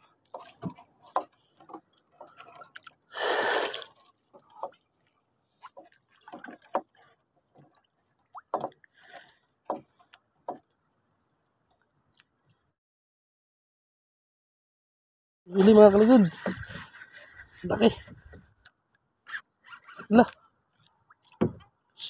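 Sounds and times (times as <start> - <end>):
water splashing against boat hull: 5.6 - 10.7, 15.6 - 18.6.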